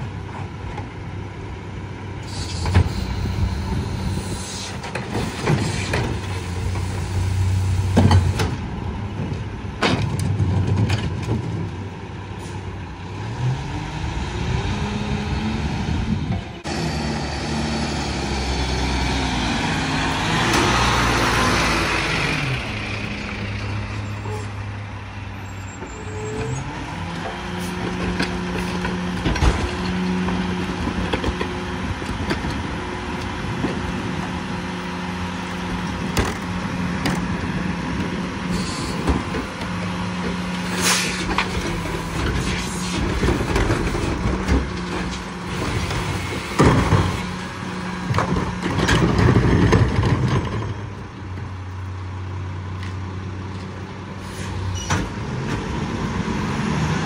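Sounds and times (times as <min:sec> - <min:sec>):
diesel truck engine: 0:00.0 - 0:57.0
air brake hiss: 0:02.2 - 0:07.9, 0:38.5 - 0:39.0, 0:40.7 - 0:41.3, 0:54.2 - 0:54.8
knocks and bangs of cart dumping: 0:27.8 - 0:31.6, 0:41.1 - 0:50.9.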